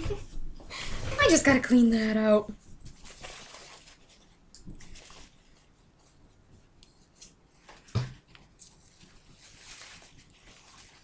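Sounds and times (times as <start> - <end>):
paper towel rubbing plastic bottle: 8.6 - 11.0.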